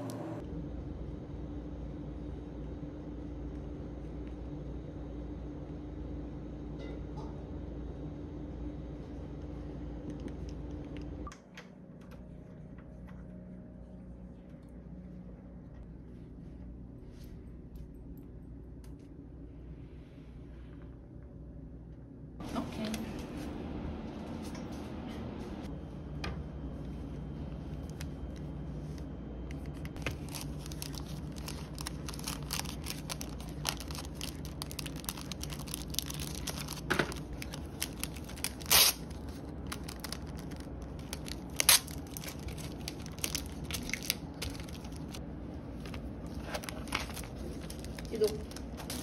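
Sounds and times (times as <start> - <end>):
plastic bags crinkling: 30.0 - 45.2, 45.8 - 49.0.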